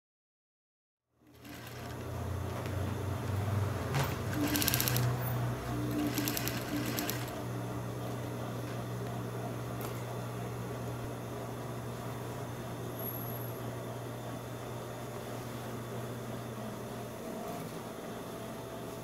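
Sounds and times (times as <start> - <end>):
sewing machine motor hum: 1.2 - 12.4
rapid machine stitching: 1.3 - 2.2, 4.0 - 7.5.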